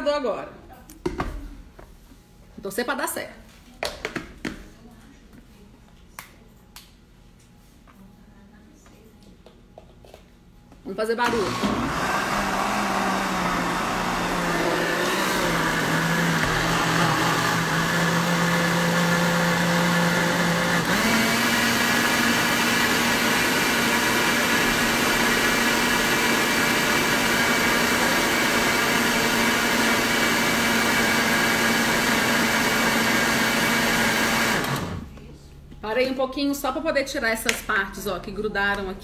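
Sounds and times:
blender motor running: 11.2 - 35.1.

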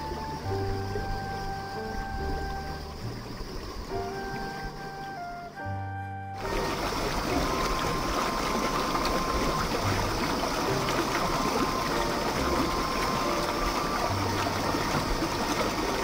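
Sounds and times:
flowing water rushing: 0.0 - 16.0.

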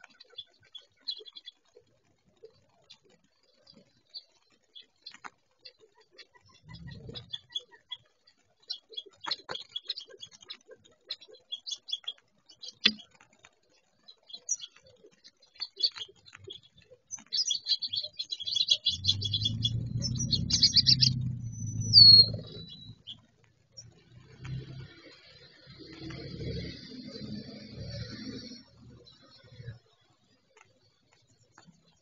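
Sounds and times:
quail chirping: 0.0 - 1.6, 2.4 - 13.2, 14.0 - 24.0
low hum: 18.7 - 29.7.

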